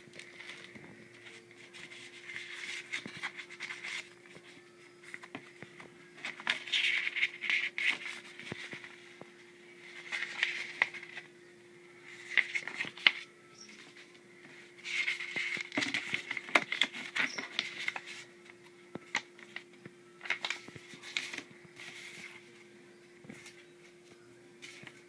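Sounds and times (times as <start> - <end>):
faint steady hum: 0.0 - 25.0
paper leaflets rustling: 0.2 - 9.0, 9.8 - 11.2, 12.1 - 18.3, 20.2 - 22.5.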